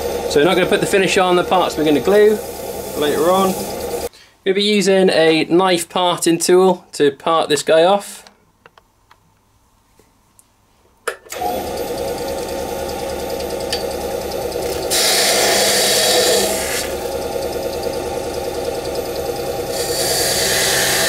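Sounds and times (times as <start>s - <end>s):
lathe motor humming: 0.0s - 4.1s, 11.4s - 21.0s
parting tool cutting wood hiss: 1.6s - 4.1s, 14.8s - 17.1s, 19.7s - 21.0s.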